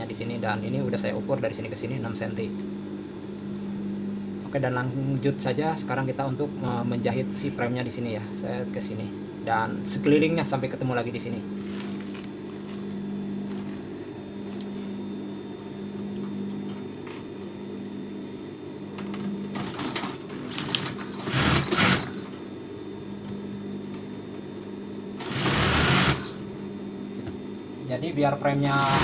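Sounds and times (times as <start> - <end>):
fabric rustling: 11.6 - 14.6
sewing machine stitching: 19.6 - 22.3, 25.2 - 26.4, 28.6 - 29.0.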